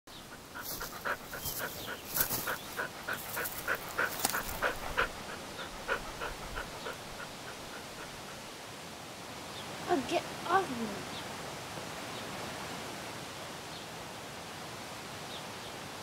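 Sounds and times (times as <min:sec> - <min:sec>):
dog panting: 0:00.1 - 0:08.6.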